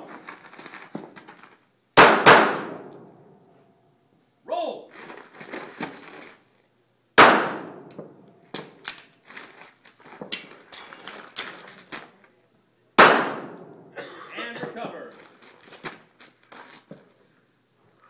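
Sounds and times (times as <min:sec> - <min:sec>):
handgun shot: 0:02.0 - 0:03.1, 0:07.2 - 0:08.2, 0:13.0 - 0:13.8.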